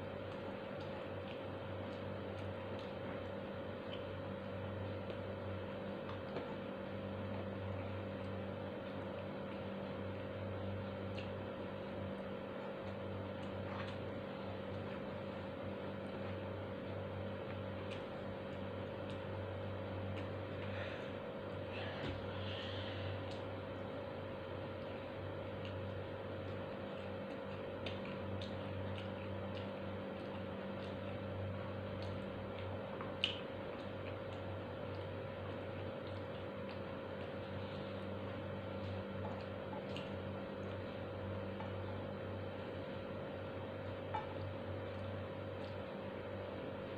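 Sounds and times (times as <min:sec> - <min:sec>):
chewing clicks: 0:00.0 - 0:04.3, 0:10.9 - 0:15.0, 0:17.3 - 0:19.4, 0:24.7 - 0:42.1, 0:43.8 - 0:46.1
low machine hum: 0:00.0 - 0:46.9.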